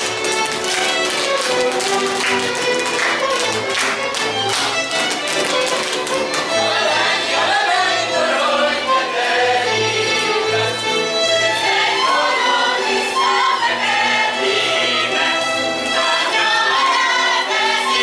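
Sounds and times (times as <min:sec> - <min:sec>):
string band playing folk dance music: 0:00.0 - 0:18.0
group of voices singing: 0:06.2 - 0:18.0.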